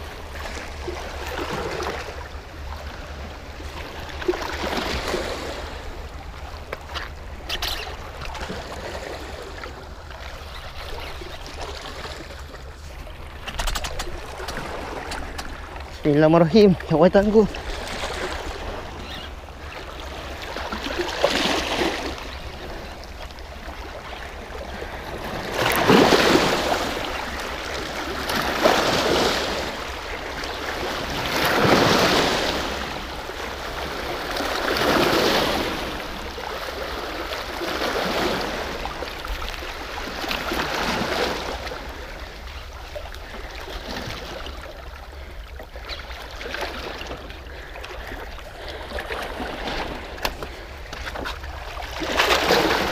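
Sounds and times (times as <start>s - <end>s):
waves washing against rocks: 25.0s - 42.1s, 48.9s - 52.9s.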